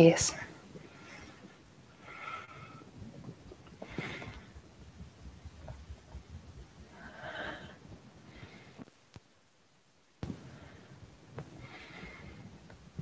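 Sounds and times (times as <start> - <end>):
person breathing: 0.8 - 3.0, 3.8 - 4.6, 6.9 - 8.9, 10.3 - 12.6.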